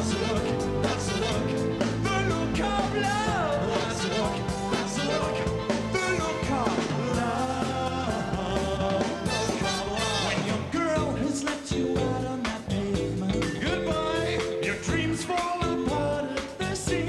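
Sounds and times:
horn section: 0:00.0 - 0:11.2
man singing lead vocal: 0:00.0 - 0:17.0
pop band playing: 0:00.0 - 0:17.0.

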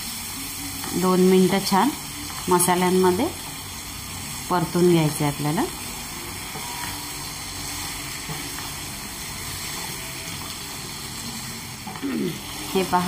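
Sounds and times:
vegetables sizzling in oil: 0:00.0 - 0:13.0.

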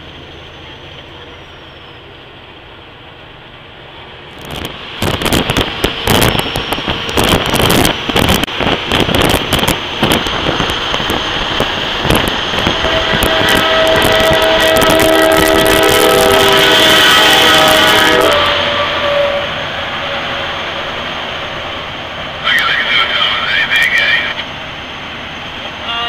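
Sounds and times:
wind buffeting microphone: 0:04.3 - 0:16.7
air horn chord: 0:12.7 - 0:19.6.

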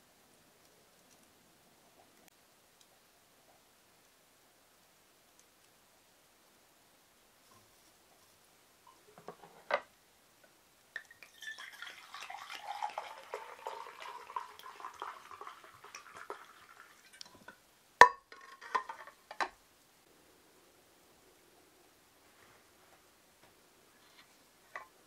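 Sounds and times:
liquid pouring into metal cup: 0:11.0 - 0:17.6.

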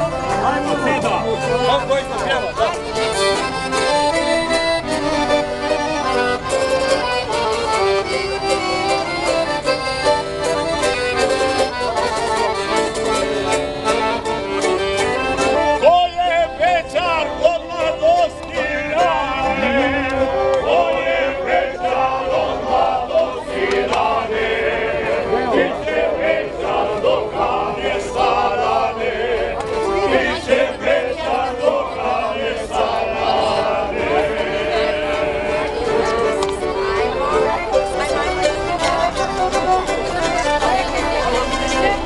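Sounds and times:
accordion playing folk tune: 0:00.0 - 0:42.0
people singing: 0:17.8 - 0:36.4.

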